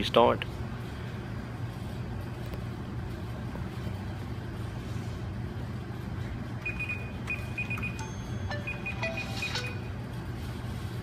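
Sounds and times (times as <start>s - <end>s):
low room hum: 0.0s - 11.0s
short high-pitched beeps: 6.6s - 9.9s.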